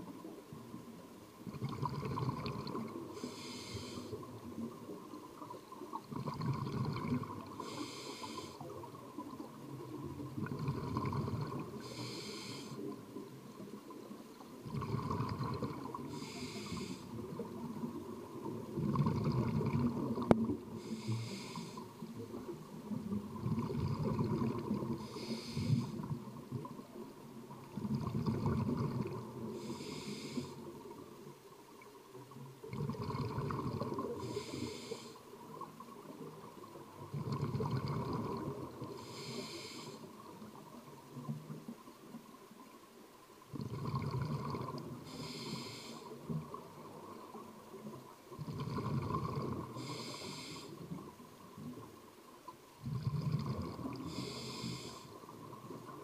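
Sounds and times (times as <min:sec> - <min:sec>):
gurgling exhaled bubbles: 0:01.4 - 0:03.2, 0:04.0 - 0:07.8, 0:08.6 - 0:11.9, 0:14.6 - 0:21.0, 0:22.9 - 0:26.8, 0:27.7 - 0:29.8, 0:32.6 - 0:34.6, 0:36.4 - 0:39.1, 0:43.5 - 0:45.0, 0:46.4 - 0:50.5, 0:52.8 - 0:56.0
regulator hiss on inhale: 0:01.6 - 0:04.6, 0:07.4 - 0:09.0, 0:10.4 - 0:13.1, 0:14.8 - 0:17.6, 0:20.7 - 0:22.4, 0:24.7 - 0:26.2, 0:29.4 - 0:31.0, 0:33.8 - 0:35.6, 0:38.8 - 0:40.4, 0:44.4 - 0:46.4, 0:48.6 - 0:51.0, 0:52.9 - 0:55.4.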